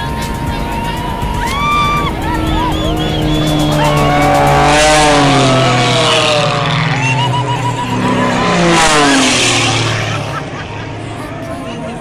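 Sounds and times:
propeller plane engine passing: 0.0 - 12.0.

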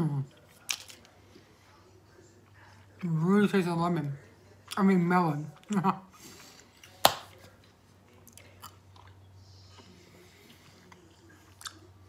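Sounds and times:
person chewing toffee: 8.1 - 12.0.

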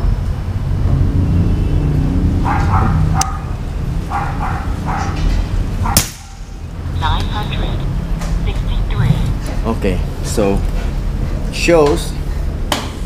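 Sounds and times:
steady low rumble: 0.0 - 11.7
dog barking: 2.4 - 6.5.

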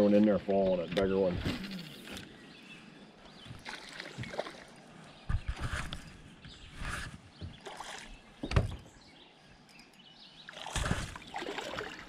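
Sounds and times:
knocks on a boat: 8.4 - 8.9.

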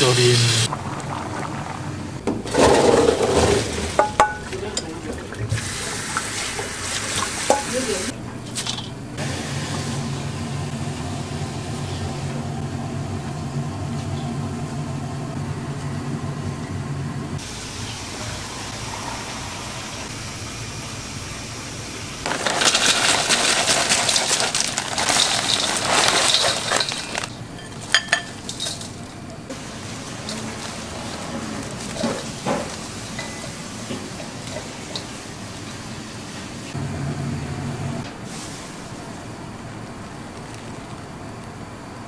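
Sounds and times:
water running hard: 0.0 - 2.2.

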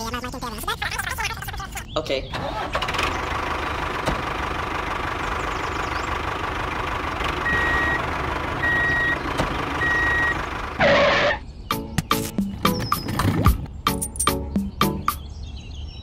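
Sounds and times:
tractor engine idling: 2.3 - 11.4
reversing alarm beeps: 7.4 - 8.0, 8.6 - 9.2, 9.8 - 11.4.

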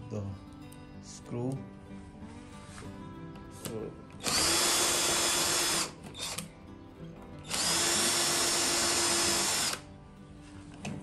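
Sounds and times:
cordless drill whining: 4.2 - 6.5, 7.4 - 9.9.

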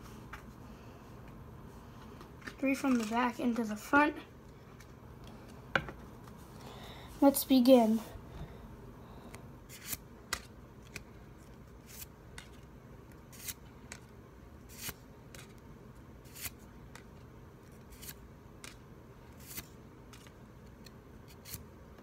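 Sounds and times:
trading card swipes: 9.7 - 11.0, 19.4 - 20.3.

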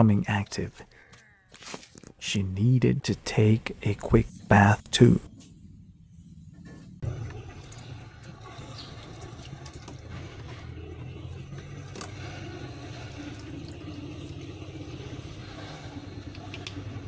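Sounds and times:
low engine-like rumble: 2.6 - 17.0
small clicks: 16.2 - 16.8.

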